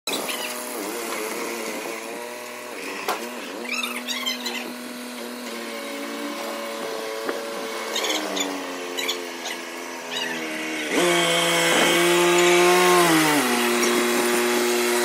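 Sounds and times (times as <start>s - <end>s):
short high squeaks: 0.1s - 0.6s, 2.9s - 4.8s, 7.9s - 10.5s
tractor diesel engine running: 0.1s - 15.0s.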